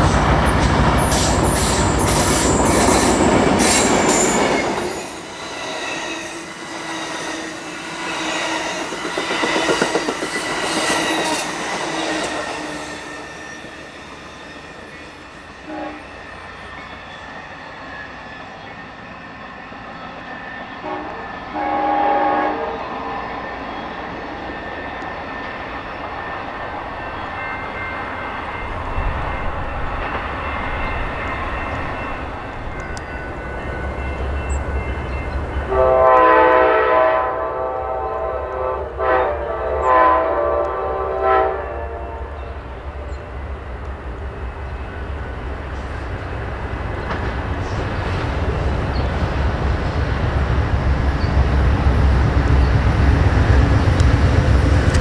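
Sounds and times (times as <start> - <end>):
train air horn blasts: 15.6 - 16.2, 20.8 - 23.2, 35.7 - 43.1.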